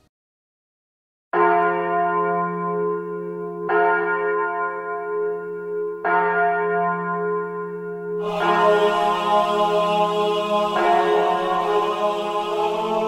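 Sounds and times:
deep bell tolling: 8.2s - 12.4s.

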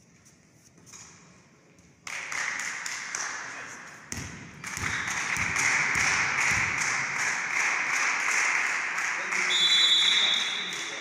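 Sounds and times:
crowd clapping and cheering: 2.0s - 3.6s, 4.6s - 11.0s.

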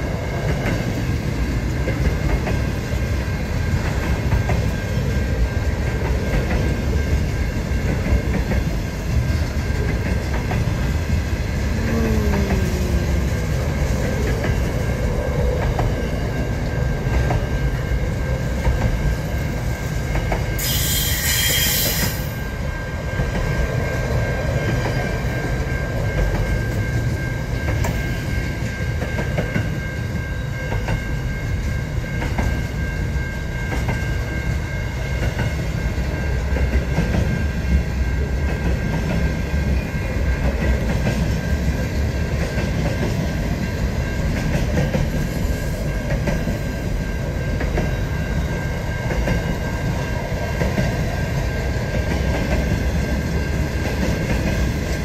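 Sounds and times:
brief high screech: 20.6s - 22.2s.

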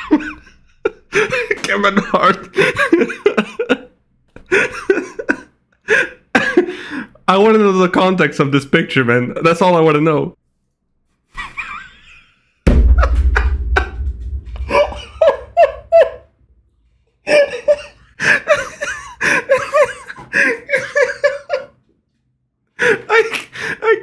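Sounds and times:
man laughing hard: 0.0s - 3.9s, 4.5s - 6.7s, 11.4s - 16.3s, 17.3s - 21.8s, 22.8s - 24.0s
deep rumble: 12.7s - 17.1s.

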